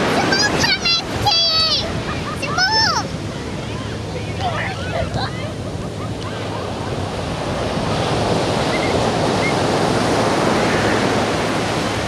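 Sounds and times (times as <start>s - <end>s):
waves breaking on beach: 0.0s - 12.0s
wind rumbling on microphone: 0.0s - 12.0s.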